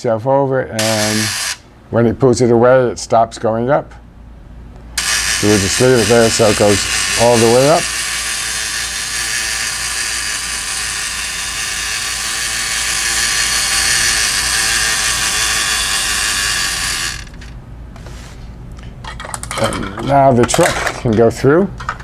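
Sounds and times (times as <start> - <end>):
toy gear mechanism running: 0.8 - 1.6, 5.0 - 17.6.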